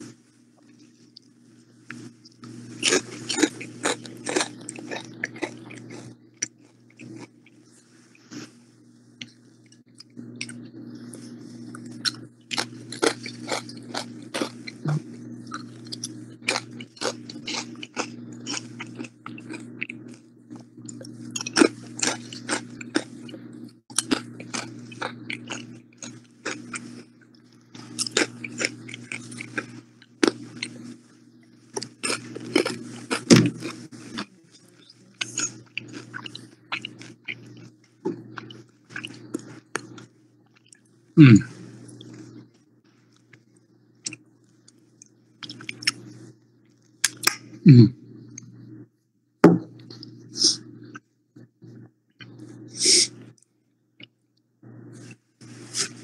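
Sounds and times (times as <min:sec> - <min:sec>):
low hum: 0:00.0 - 0:42.8
person crunching chips: 0:02.5 - 0:07.3, 0:11.7 - 0:14.8, 0:15.6 - 0:20.2, 0:23.9 - 0:27.1, 0:27.8 - 0:30.8, 0:31.8 - 0:34.3.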